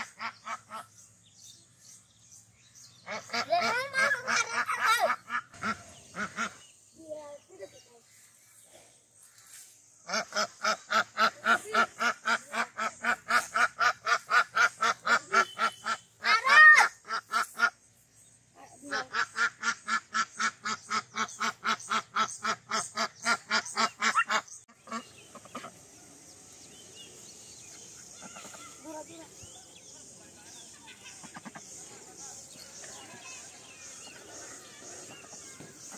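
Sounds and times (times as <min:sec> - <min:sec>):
duck quacking: 0:00.0 - 0:00.9, 0:03.0 - 0:06.6, 0:10.1 - 0:17.8, 0:18.8 - 0:25.7
faint background hiss: 0:24.8 - 0:35.9.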